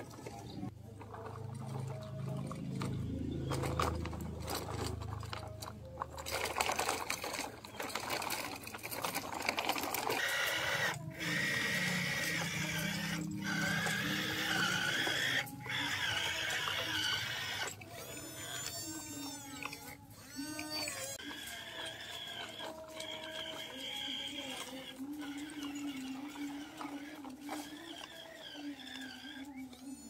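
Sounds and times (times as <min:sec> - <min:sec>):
scraping of dirt and gravel: 0:00.0 - 0:10.3, 0:19.7 - 0:30.0
small electric gear motors whining: 0:02.8 - 0:30.0.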